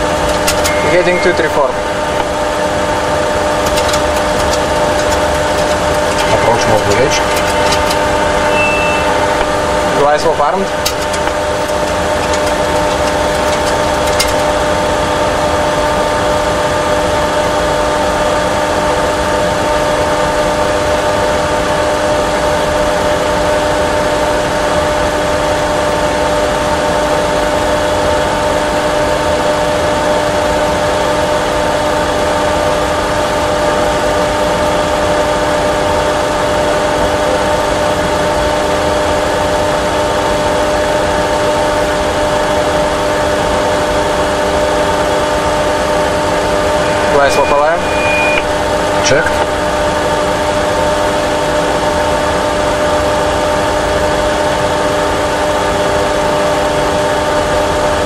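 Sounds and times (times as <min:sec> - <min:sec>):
cockpit engine and airflow noise: 0:00.0 - 0:58.0.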